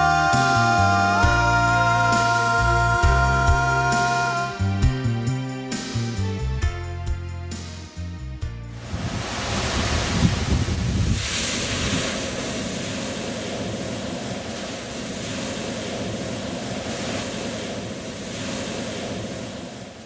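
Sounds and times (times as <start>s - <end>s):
ocean surf breaking: 8.8s - 20.0s.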